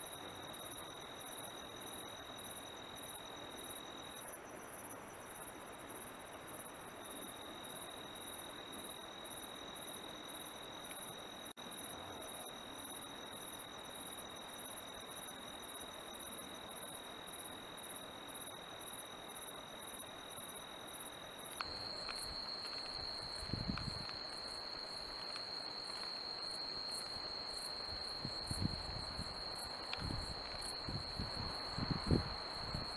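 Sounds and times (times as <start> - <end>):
crickets chirping: 0.0 - 32.9
high insect trill: 0.0 - 32.9.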